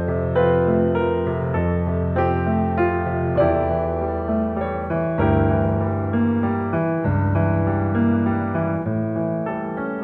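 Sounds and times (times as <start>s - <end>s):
gentle piano music: 0.0s - 10.0s.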